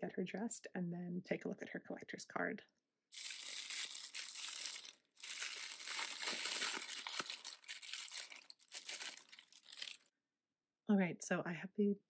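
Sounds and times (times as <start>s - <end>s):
crinkly wrapping pulled open: 3.2s - 10.1s.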